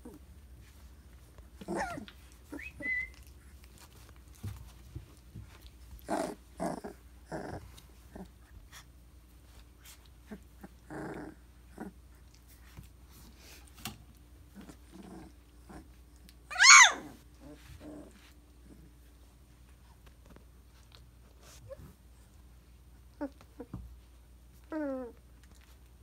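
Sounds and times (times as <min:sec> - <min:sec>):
puppy growls: 0:01.5 - 0:04.5, 0:05.6 - 0:08.9, 0:10.0 - 0:12.6, 0:14.5 - 0:19.1, 0:23.1 - 0:23.8, 0:24.6 - 0:25.7
puppy whining: 0:01.5 - 0:04.6, 0:14.5 - 0:19.0, 0:20.7 - 0:22.4, 0:23.0 - 0:25.8
puppy squeak: 0:01.7 - 0:03.2, 0:16.5 - 0:17.1.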